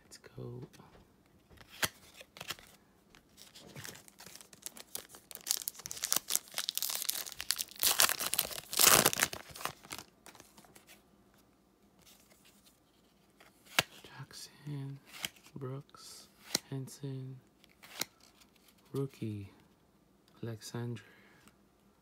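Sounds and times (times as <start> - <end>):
plastic wrapper tearing and crinkling: 3.4 - 10.6.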